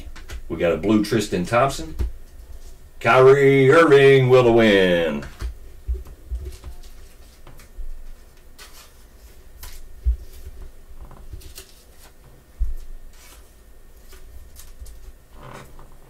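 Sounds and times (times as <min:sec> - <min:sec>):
trading cards swiping and sliding: 0:06.4 - 0:10.4.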